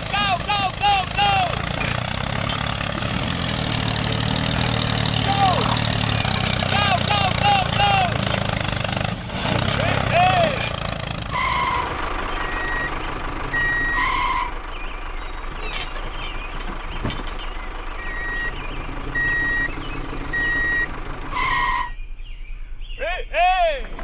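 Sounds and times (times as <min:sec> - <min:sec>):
engine running: 0:00.0 - 0:23.0
short horn blasts: 0:11.3 - 0:12.0, 0:13.7 - 0:14.6, 0:21.3 - 0:22.0
reversing alarm beeping: 0:11.4 - 0:14.6, 0:18.0 - 0:21.9.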